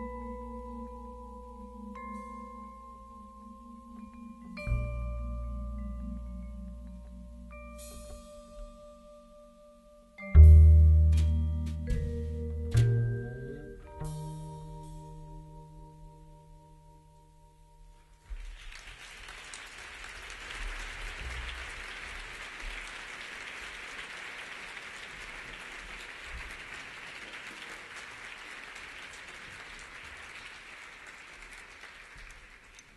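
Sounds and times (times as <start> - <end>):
audience applause: 18.3 - 32.9.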